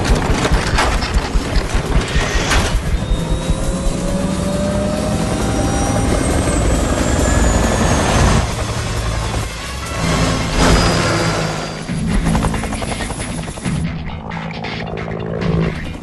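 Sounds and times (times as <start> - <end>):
helicopter rotor and engine rumble: 0.0 - 16.0
rising turbine whine: 0.7 - 12.6
high falling whistle: 2.2 - 8.4.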